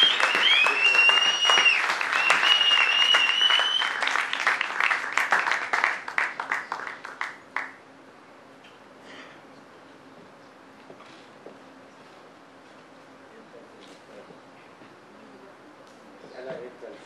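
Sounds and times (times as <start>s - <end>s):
high held whistling tone: 0.0s - 4.1s
audience applauding: 0.0s - 7.8s.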